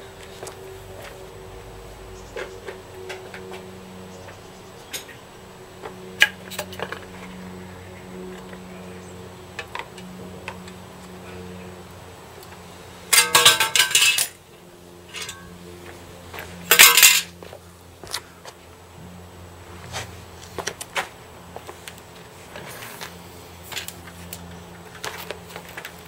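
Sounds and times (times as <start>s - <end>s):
metal panels crashing on concrete: 13.1s - 14.4s, 16.7s - 17.3s.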